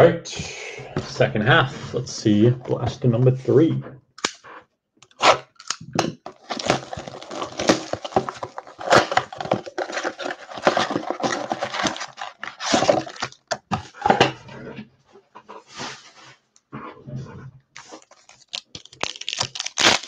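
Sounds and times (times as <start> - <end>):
plastic wrappers crinkling: 5.5 - 13.7, 17.8 - 20.0
cardboard box tearing: 6.3 - 13.6, 17.8 - 20.0.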